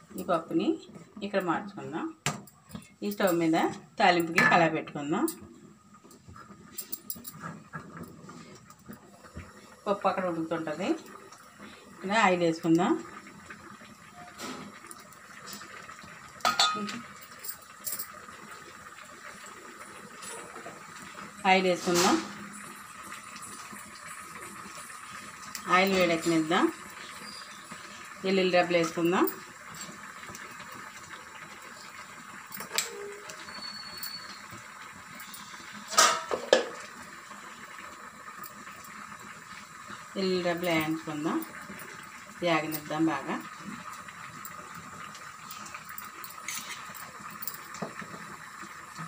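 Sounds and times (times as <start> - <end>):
oil hissing in a pan: 5.5 - 49.0
light metal clinks on a pot: 16.4 - 18.2, 45.4 - 48.0.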